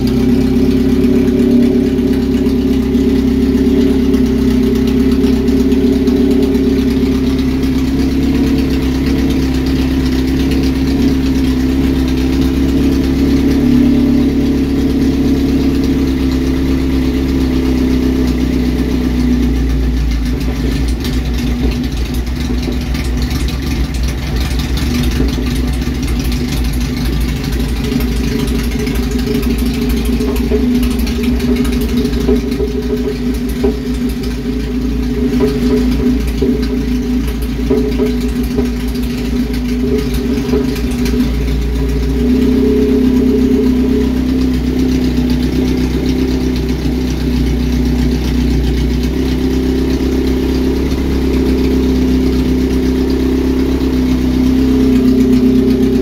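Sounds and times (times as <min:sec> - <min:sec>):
raw car engine idling: 0:00.0 - 0:56.0.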